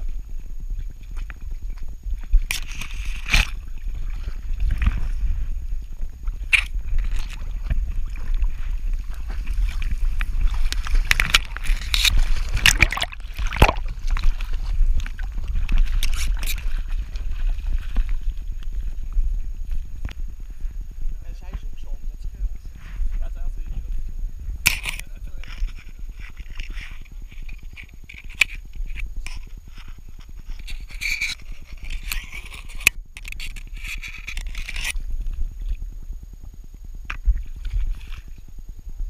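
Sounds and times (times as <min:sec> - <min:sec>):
grass scraping against camera: 0:00.0 - 0:35.9, 0:37.0 - 0:38.6
camera handling rumble: 0:01.2 - 0:03.8, 0:06.1 - 0:07.9, 0:08.8 - 0:20.3, 0:24.5 - 0:35.8.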